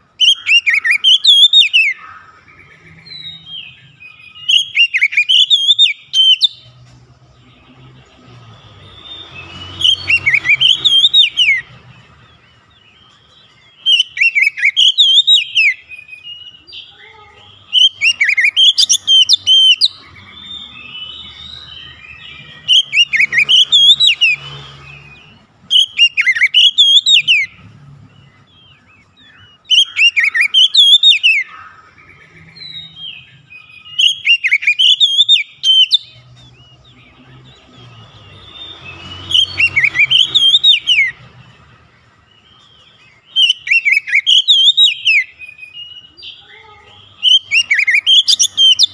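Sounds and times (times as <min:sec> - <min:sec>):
soft bird twittering: 0:00.0 - 0:48.9
bird whistled song phrases: 0:00.2 - 0:06.8, 0:08.6 - 0:11.8, 0:13.1 - 0:27.6, 0:28.2 - 0:41.3, 0:42.1 - 0:48.9.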